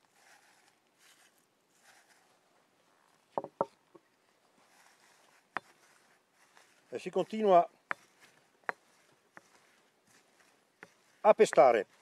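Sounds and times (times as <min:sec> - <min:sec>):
faint rustling: 0:00.0 - 0:12.0
wooden pestle knocking in mortar: 0:03.4 - 0:03.8, 0:07.8 - 0:09.7, 0:10.8 - 0:12.0.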